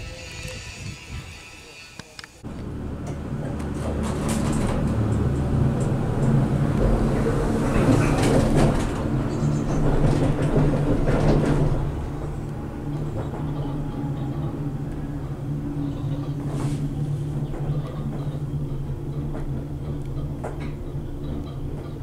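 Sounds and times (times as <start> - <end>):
gondola rumbling and clattering: 2.4 - 22.0
steady low hum: 2.4 - 22.0
clacks: 3.0 - 13.7, 17.4 - 22.0.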